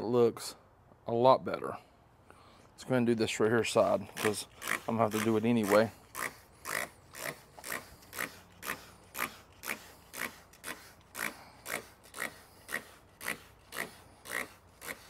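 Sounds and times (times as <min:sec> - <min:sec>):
spray bottle squirting: 0:04.0 - 0:15.0.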